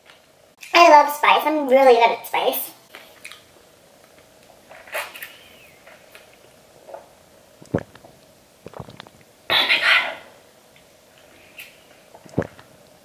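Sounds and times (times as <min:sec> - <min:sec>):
mouth clicks: 0:07.6 - 0:08.0.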